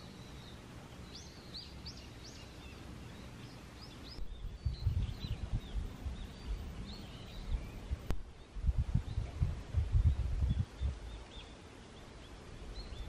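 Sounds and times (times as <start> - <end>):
small birds chirping: 0.0 - 13.0
low rumble on microphone: 4.0 - 11.5.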